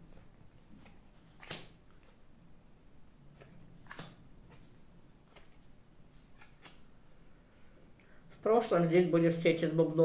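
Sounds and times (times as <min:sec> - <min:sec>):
playing cards snapping: 0:00.8 - 0:01.8, 0:03.4 - 0:04.3, 0:06.3 - 0:06.8.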